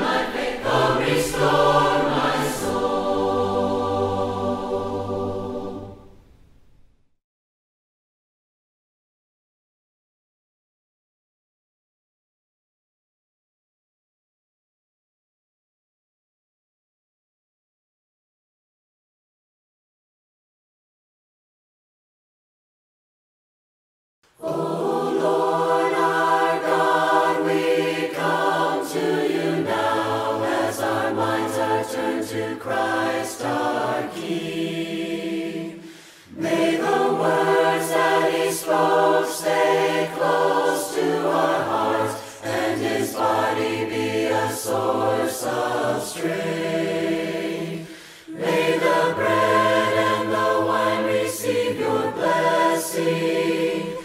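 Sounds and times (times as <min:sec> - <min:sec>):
choir singing a hymn: 0:00.0 - 0:06.4, 0:24.4 - 0:54.0.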